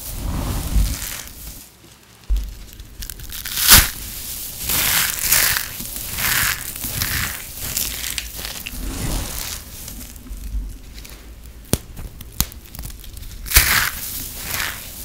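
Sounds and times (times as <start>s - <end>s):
soap shavings crunching: 2.3s - 15.0s.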